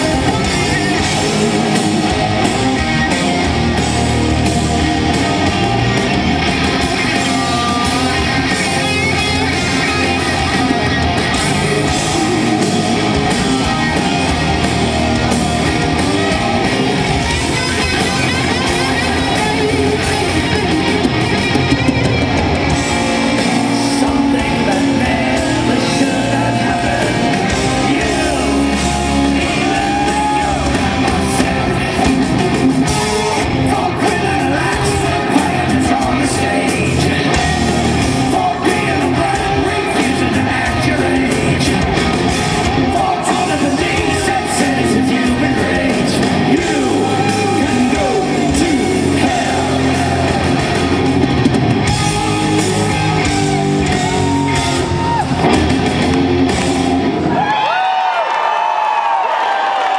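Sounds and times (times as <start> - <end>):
man singing: 0.0 - 2.3, 7.0 - 10.5, 11.3 - 13.8, 23.3 - 42.1, 42.7 - 50.8
live rock band playing: 0.0 - 57.8.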